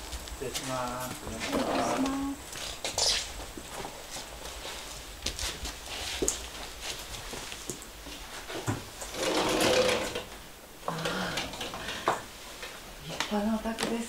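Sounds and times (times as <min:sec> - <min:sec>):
rustling: 0:00.0 - 0:10.4.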